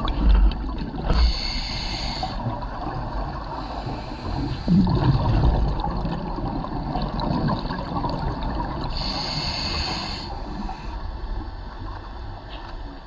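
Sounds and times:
underwater rumble and bubbles: 0.0 - 13.0
regulator inhalation hiss: 1.2 - 2.4, 8.9 - 10.9.

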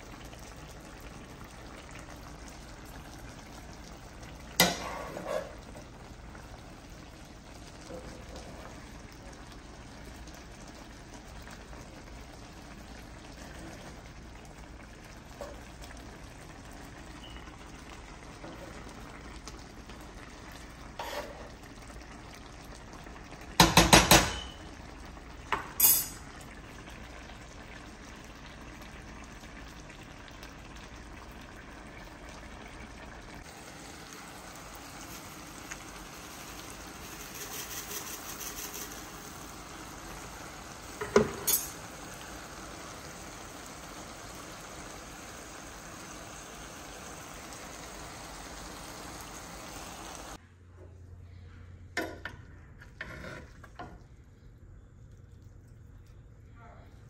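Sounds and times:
food bubbling in skillet: 0.0 - 50.4
spoon knocking against pan: 23.6 - 24.6.

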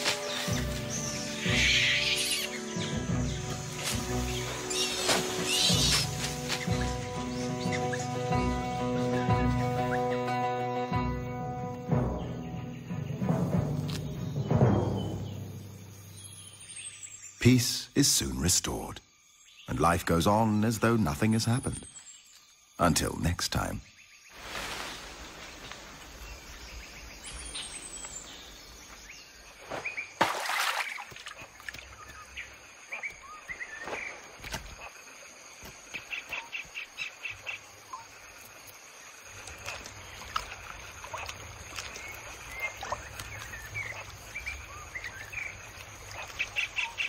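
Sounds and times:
birds chirping and calling: 0.0 - 10.9, 39.6 - 47.0.

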